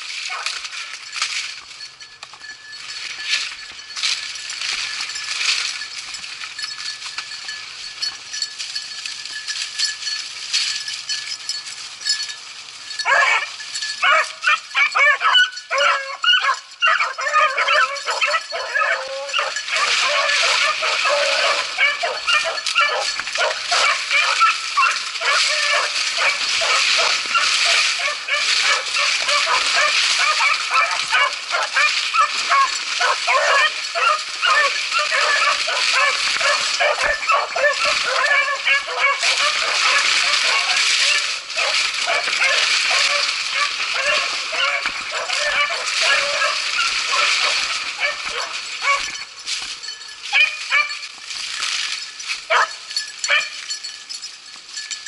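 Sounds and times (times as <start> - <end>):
dogs baying and yelping: 0.2 - 0.7, 12.9 - 51.0, 52.5 - 53.7.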